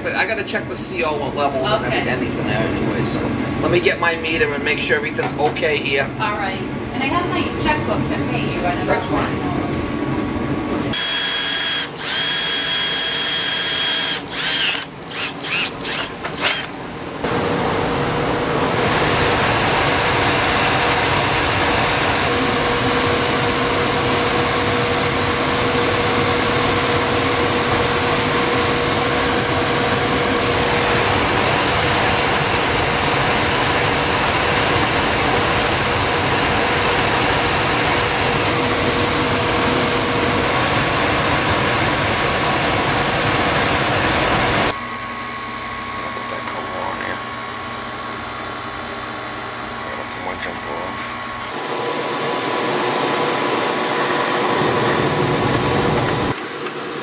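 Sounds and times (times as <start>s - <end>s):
furnace humming: 0.0s - 57.0s
cordless drill whining: 10.9s - 16.8s.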